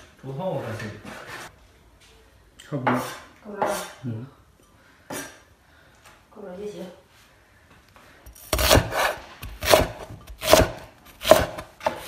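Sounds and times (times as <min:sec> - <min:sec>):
cleaver chopping on wooden board: 0:08.5 - 0:12.0.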